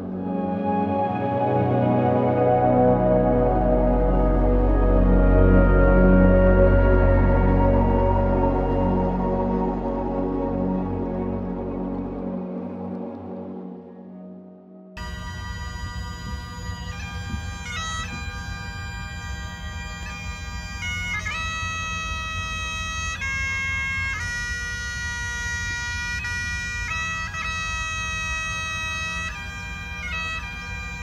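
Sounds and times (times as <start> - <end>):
bagpipes playing slow tune: 0.0 - 12.4, 15.0 - 31.0.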